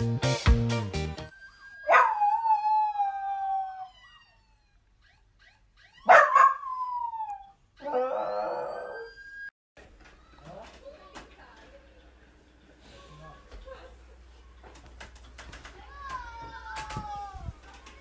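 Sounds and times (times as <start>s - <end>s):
dog howling: 1.7s - 4.8s, 6.0s - 9.2s.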